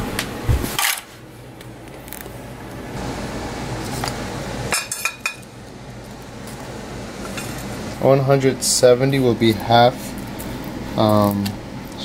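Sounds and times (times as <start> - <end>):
steady low hum: 0.0 - 12.0
dishes and cutlery clinking: 4.7 - 5.4.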